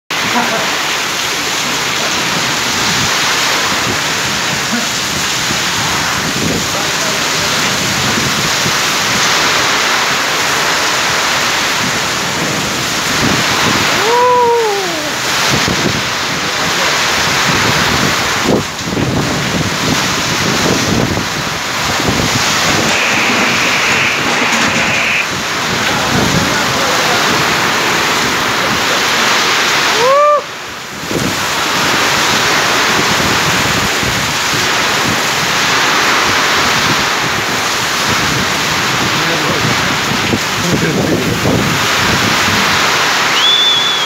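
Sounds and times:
heavy rain: 0.1 - 44.0
wind buffeting microphone: 0.2 - 29.9, 30.6 - 44.0
short rising squeal: 22.6 - 25.3
high steady whistle: 43.3 - 44.0.

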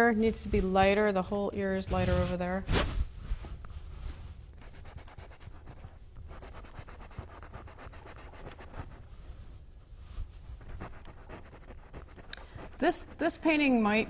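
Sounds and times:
paintbrush scrubbing on canvas: 4.0 - 9.1, 10.6 - 14.0.

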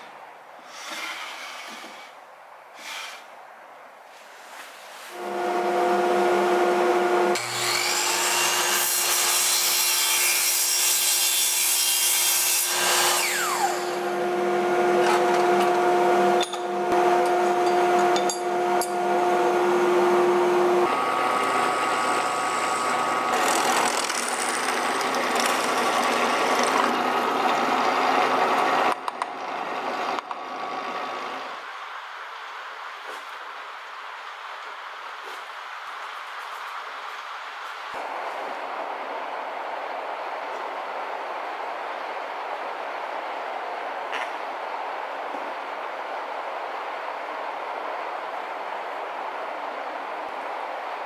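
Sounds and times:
saw motor whine: 5.2 - 9.4, 12.6 - 29.0.

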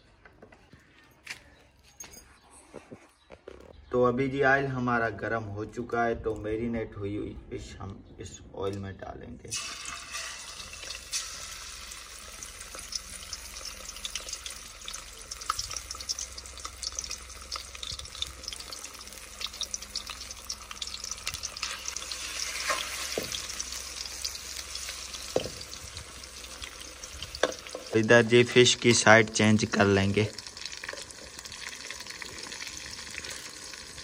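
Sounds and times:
fish sizzling in hot oil: 9.5 - 34.0.

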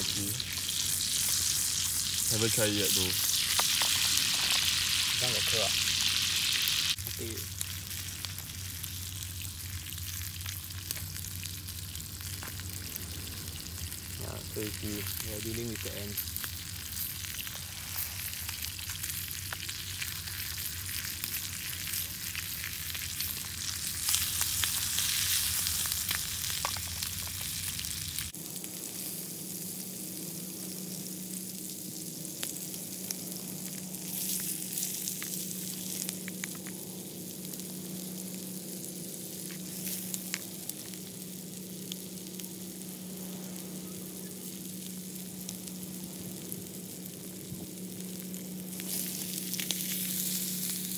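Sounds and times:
fish sizzling in a pan: 0.0 - 50.9.

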